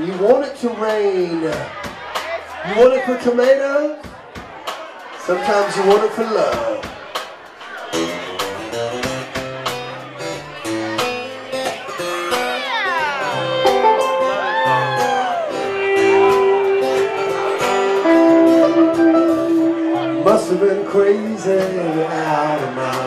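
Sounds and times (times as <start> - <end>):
country rock band playing: 5.3 - 23.0
harmonica playing lead: 13.4 - 21.4.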